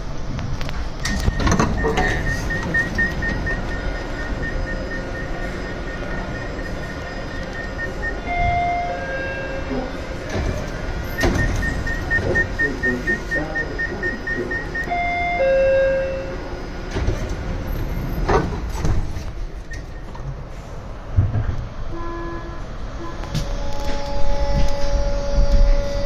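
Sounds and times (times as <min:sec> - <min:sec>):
low train rumble: 0:00.0 - 0:26.0
door clunk: 0:01.0 - 0:03.5, 0:10.2 - 0:12.5
short warning beeps: 0:01.1 - 0:10.0, 0:11.0 - 0:16.6.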